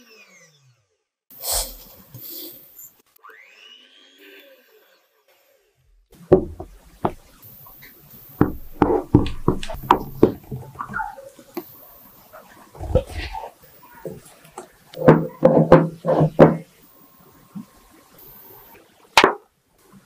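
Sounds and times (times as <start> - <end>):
spatula knocking on glass bowl: 8.4 - 10.4.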